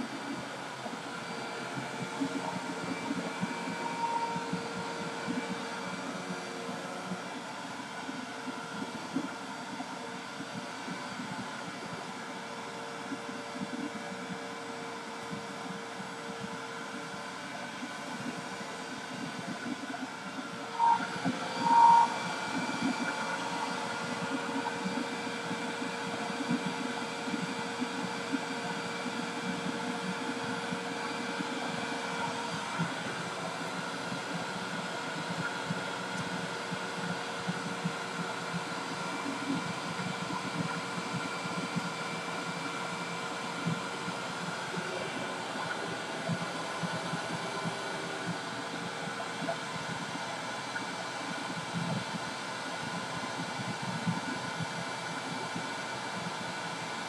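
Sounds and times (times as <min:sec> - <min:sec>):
vacuum cleaner running: 0:00.0 - 0:57.0
short high beeps: 0:20.8 - 0:22.2.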